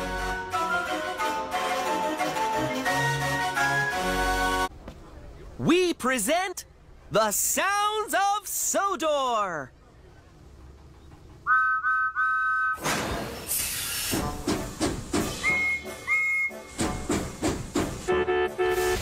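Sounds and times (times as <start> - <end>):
rhythmic steam engine chuffing: 10.3 - 19.0
high-pitched whistle toots: 11.5 - 12.8, 15.3 - 16.7
two-note steam whistle: 11.5 - 12.9, 15.2 - 17.1, 18.0 - 19.0
hissing steam: 12.8 - 18.1
low horn: 18.1 - 19.0.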